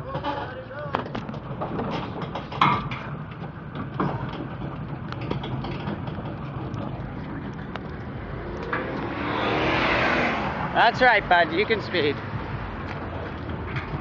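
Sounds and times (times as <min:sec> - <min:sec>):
light rattles: 0:00.0 - 0:08.9
tyre noise: 0:00.0 - 0:14.0
vehicle approaching: 0:03.2 - 0:14.0
vehicle engine running slowly: 0:03.2 - 0:14.0.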